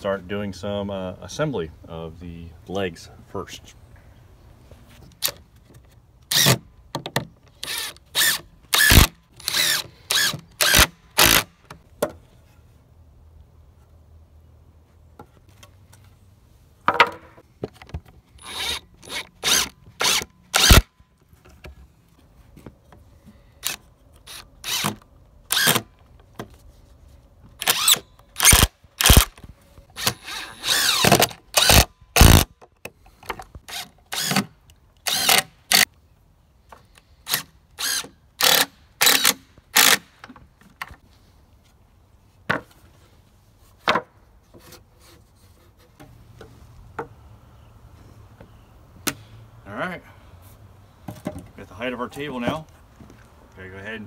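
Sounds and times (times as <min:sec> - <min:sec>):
cordless drill driving screws: 0:07.6 - 0:11.5, 0:18.4 - 0:20.9, 0:23.6 - 0:25.9, 0:27.6 - 0:29.3, 0:30.0 - 0:32.5, 0:33.7 - 0:35.9, 0:37.2 - 0:40.1.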